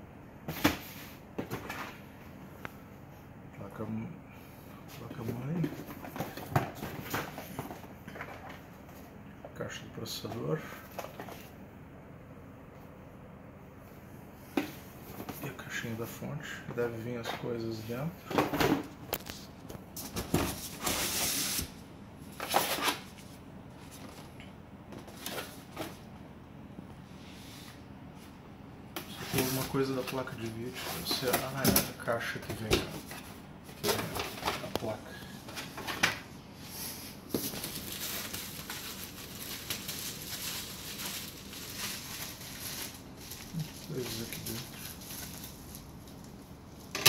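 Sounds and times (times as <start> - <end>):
bubble wrap crinkling: 37.2 - 46.9.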